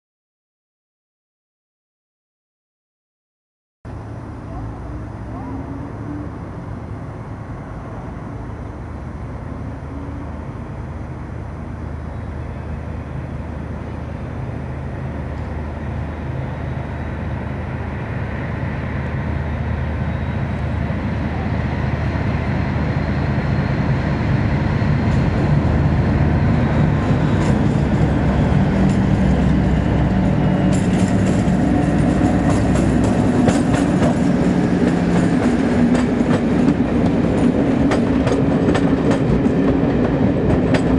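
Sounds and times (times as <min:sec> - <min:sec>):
diesel locomotive engine: 0:03.9 - 0:40.9
train wheels clicking over rail joints: 0:26.5 - 0:40.9.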